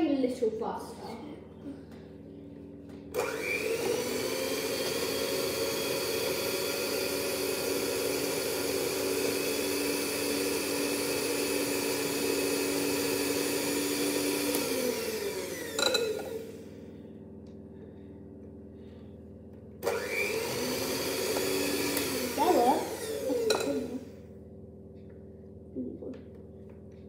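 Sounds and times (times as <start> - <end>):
electric hand mixer whisking batter: 3.0 - 24.2.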